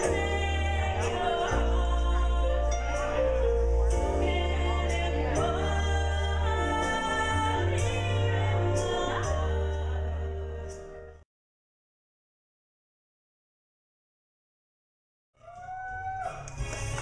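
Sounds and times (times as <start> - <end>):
woman singing into microphone: 0.0 - 10.7
backing track music: 0.0 - 11.2, 15.7 - 17.0.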